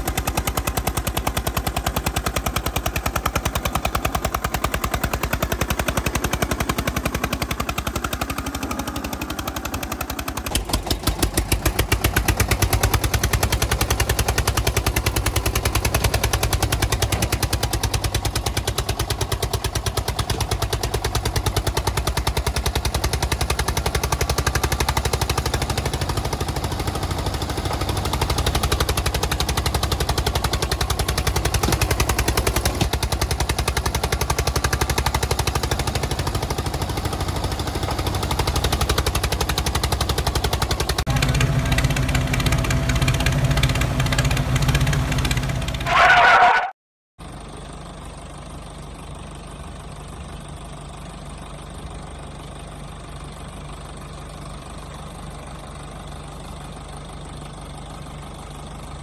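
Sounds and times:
tractor engine putter: 0.0s - 26.1s, 27.1s - 46.4s.

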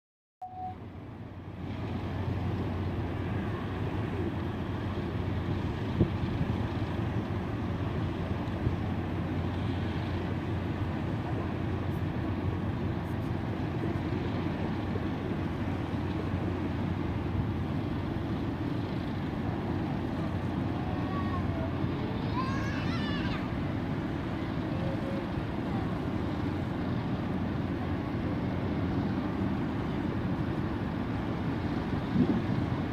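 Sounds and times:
ship engines rumbling: 0.4s - 32.9s.

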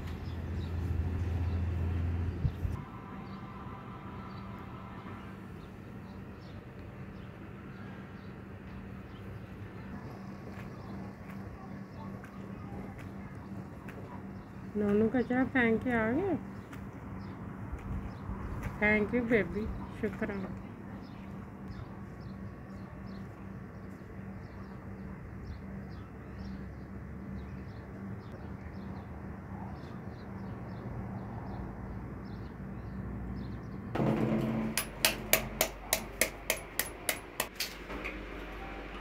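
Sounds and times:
low hum: 0.0s - 14.8s.

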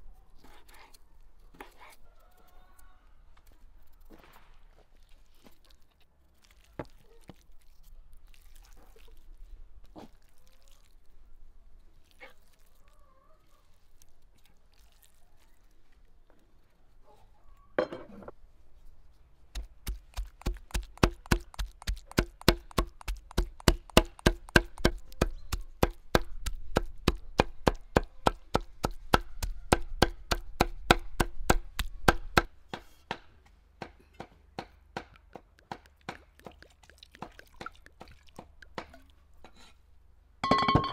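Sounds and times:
knife chopping on wooden board: 19.6s - 33.2s.

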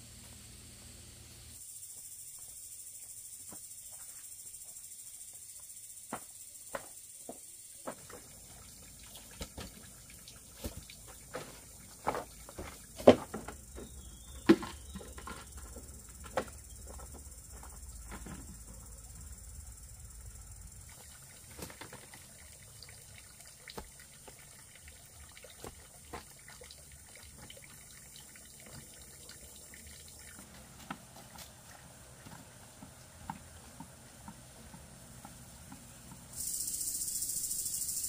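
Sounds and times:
water trickling and splashing: 7.8s - 36.3s.

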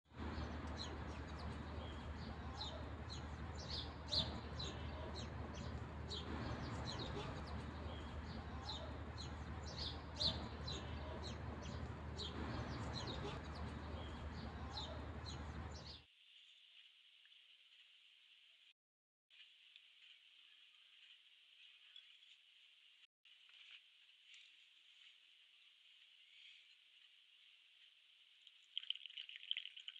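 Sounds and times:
small birds chirping: 0.1s - 16.0s.

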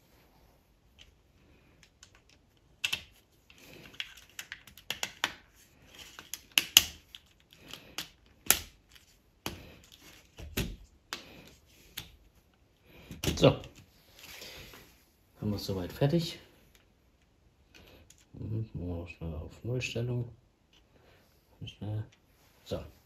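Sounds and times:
soft handling noise: 0.0s - 18.5s, 20.6s - 23.0s
plastic parts clicking together: 1.8s - 11.3s.

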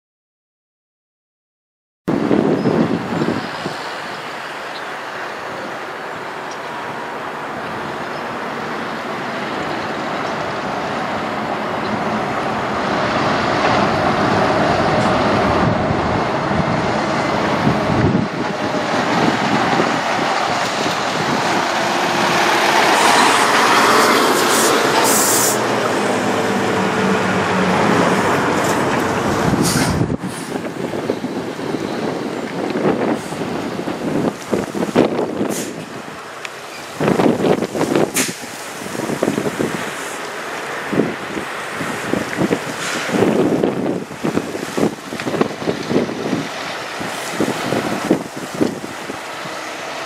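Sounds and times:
truck diesel engine: 2.1s - 50.0s
short high hiss: 22.8s - 25.7s, 29.6s - 30.6s, 35.5s - 35.9s, 38.1s - 39.0s.

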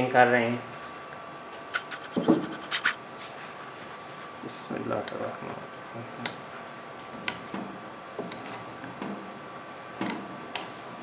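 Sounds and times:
steady high-pitched whine: 0.0s - 11.0s.

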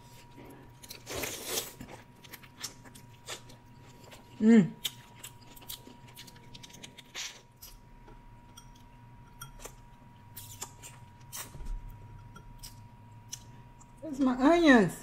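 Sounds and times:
chewing: 0.1s - 7.8s.

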